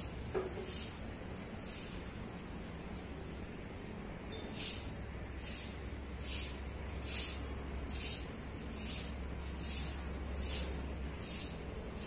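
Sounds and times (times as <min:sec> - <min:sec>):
short bursts of high hiss: 0:04.5 - 0:12.0.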